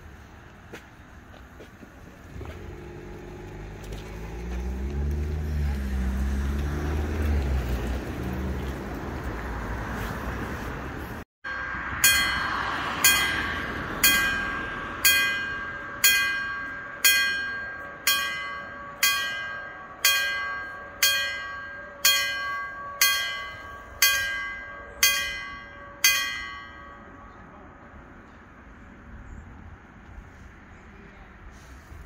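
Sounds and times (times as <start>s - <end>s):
level crossing bell ringing: 11.5s - 27.3s.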